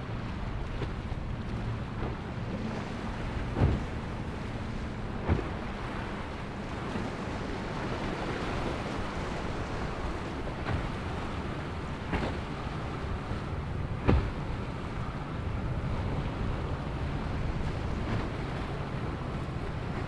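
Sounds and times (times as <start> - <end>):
surf: 0.0 - 20.0
wind: 0.0 - 20.0
boat hull slamming onto waves: 0.4 - 20.0.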